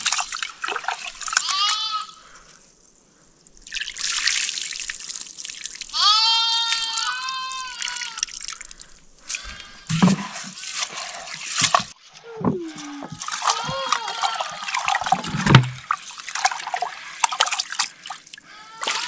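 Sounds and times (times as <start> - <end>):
liquid trickling and splashing: 0.0 - 1.6, 3.4 - 19.0.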